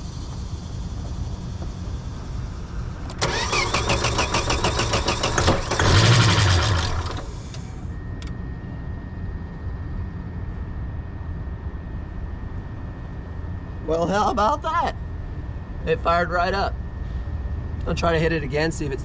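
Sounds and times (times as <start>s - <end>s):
car engine cranking and running: 0.0s - 7.8s.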